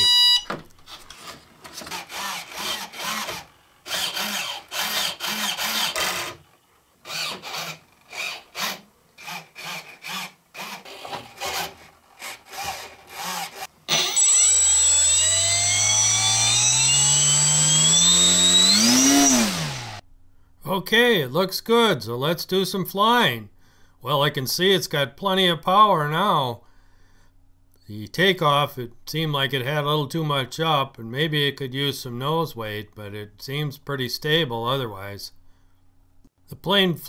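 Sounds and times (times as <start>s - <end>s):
electric motor whine: 13.2s - 20.0s.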